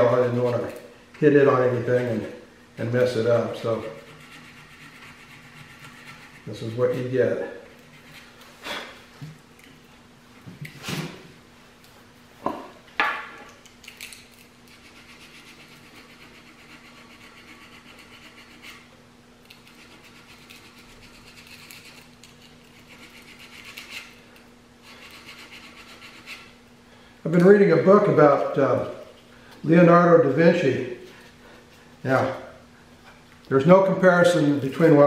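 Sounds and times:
steady low hum: 0:00.0 - 0:35.0
sandpaper rubbing on wood: 0:03.6 - 0:07.2, 0:14.7 - 0:18.9, 0:19.6 - 0:22.1, 0:22.8 - 0:24.2, 0:24.9 - 0:26.5.

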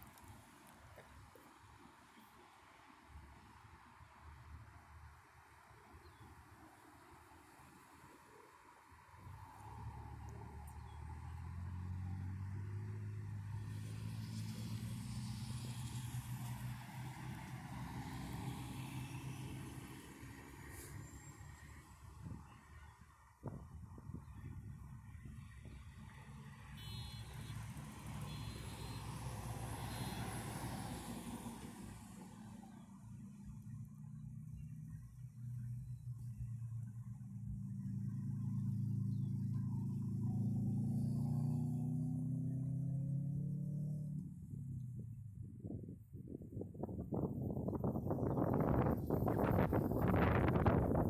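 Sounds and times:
low rumble of traffic: 0:00.0 - 0:51.0
large vehicle engine hum: 0:09.1 - 0:51.0
truck passing close by: 0:09.2 - 0:22.2, 0:25.8 - 0:33.8, 0:37.6 - 0:45.0.

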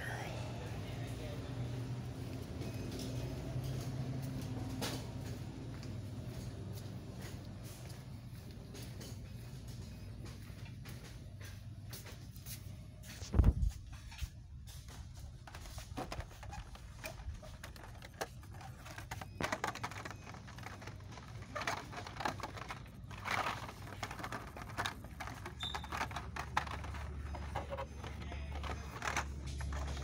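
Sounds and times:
low steady hum: 0:00.0 - 0:30.0
blister cards clacking and rustling: 0:15.2 - 0:30.0.

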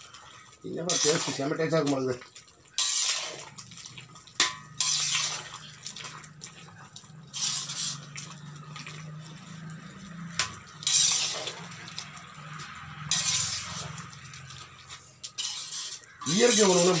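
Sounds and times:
gravy bubbling: 0:00.0 - 0:15.2
metal spoon scraping pot: 0:00.9 - 0:01.5, 0:02.8 - 0:03.7, 0:04.4 - 0:06.3, 0:07.2 - 0:11.9, 0:12.6 - 0:17.0.

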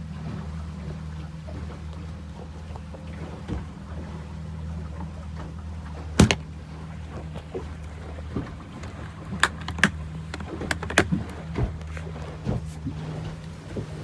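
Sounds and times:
engine droning: 0:00.0 - 0:14.0
plastic cooler lid knocking shut: 0:06.2 - 0:06.4.

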